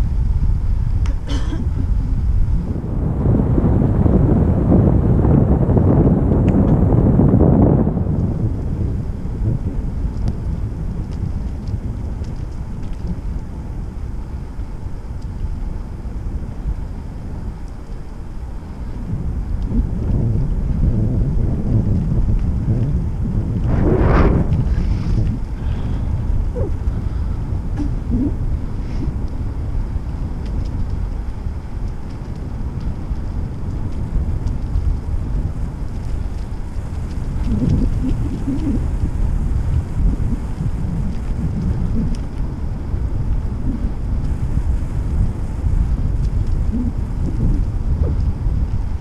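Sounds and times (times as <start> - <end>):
bicycle tyres rolling: 0.0 - 49.0
wind buffeting microphone: 0.0 - 49.0
faint ticks: 9.6 - 20.9, 23.6 - 48.9
faint light ticks: 10.1 - 13.4, 14.6 - 15.9, 30.1 - 42.5.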